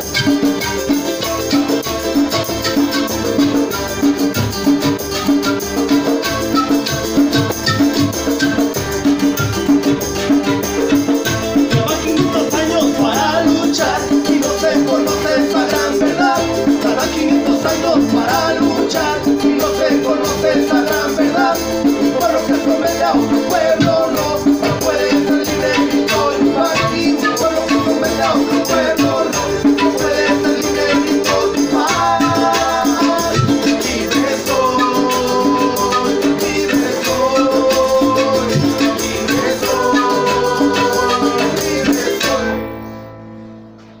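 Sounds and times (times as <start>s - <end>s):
panpipes playing held notes: 0.0s - 14.1s, 23.0s - 42.6s
hand drum: 0.0s - 42.6s
strummed guitar: 0.0s - 44.0s.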